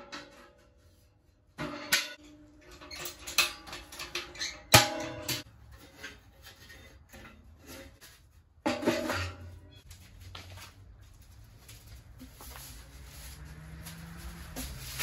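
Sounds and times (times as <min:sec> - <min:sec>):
metal clanks and knocks: 0:00.0 - 0:09.9.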